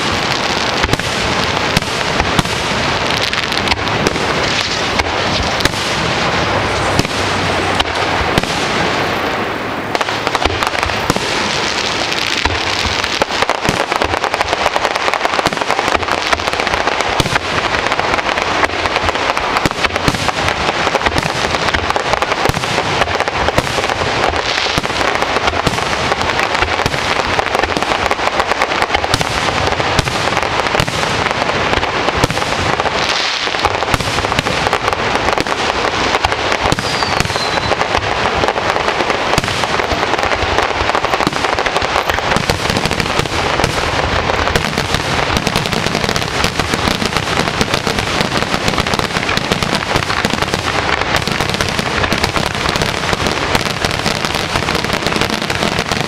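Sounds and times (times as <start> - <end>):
fireworks bursting: 0.0 - 56.0
falling firework whistle: 36.2 - 38.1.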